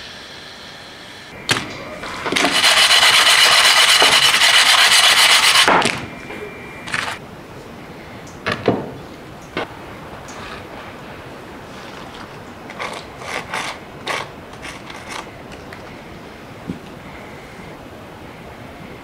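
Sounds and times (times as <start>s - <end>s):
sugar and dough rasping on metal: 2.1s - 5.7s.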